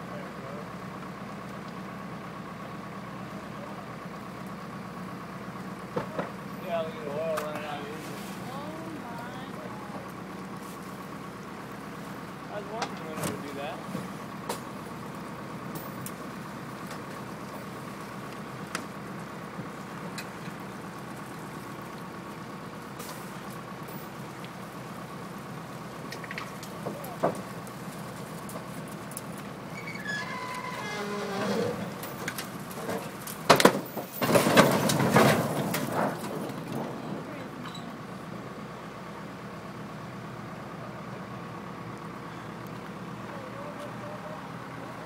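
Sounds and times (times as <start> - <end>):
vehicle engine idling: 0.0 - 45.0
loud rustling and knocking: 31.2 - 37.1.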